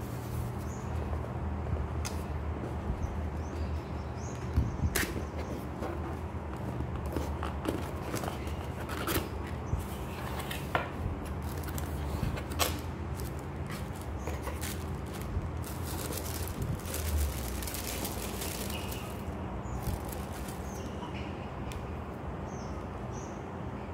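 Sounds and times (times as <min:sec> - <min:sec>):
tissue paper rustling: 0:13.1 - 0:20.8.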